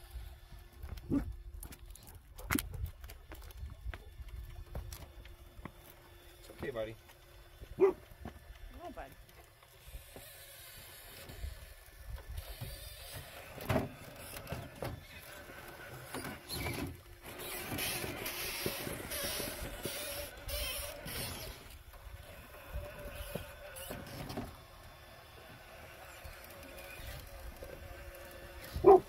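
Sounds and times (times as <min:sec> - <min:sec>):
electric motor whining: 0:00.0 - 0:29.0.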